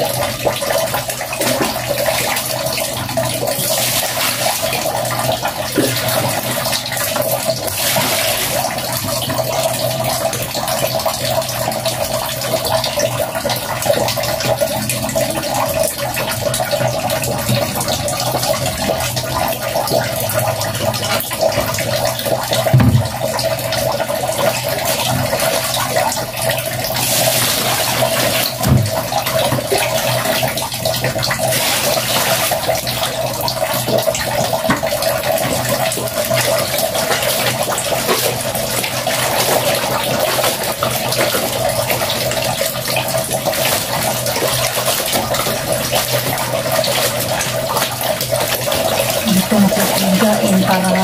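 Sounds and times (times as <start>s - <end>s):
water sloshing and splashing: 0.0s - 51.0s
wet clothes scrubbed by hand: 3.4s - 9.8s, 24.3s - 30.6s, 31.2s - 33.0s, 33.8s - 51.0s.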